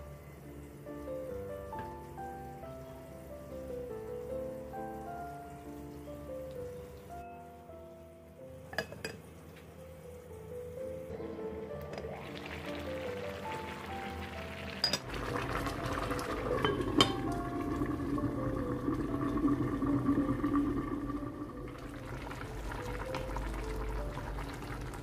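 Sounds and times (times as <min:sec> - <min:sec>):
light background music: 0:00.0 - 0:25.0
pot of water boiling: 0:11.0 - 0:25.0.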